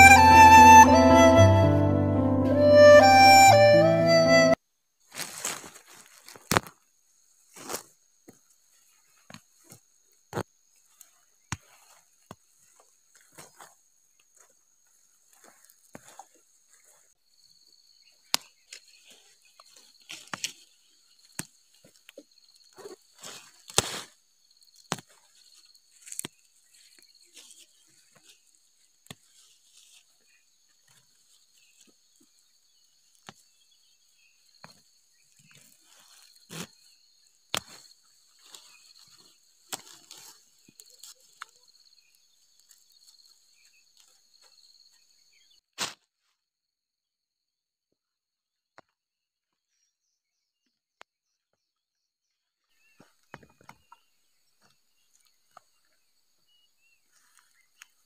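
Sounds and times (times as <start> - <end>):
leaves rustling: 5.1 - 6.5, 37.7 - 41.4.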